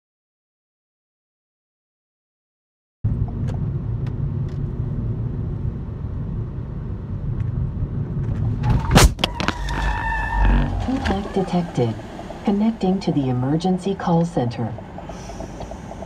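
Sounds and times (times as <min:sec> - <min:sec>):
car road noise rumble: 0:03.0 - 0:16.0
steady tone: 0:03.1 - 0:16.0.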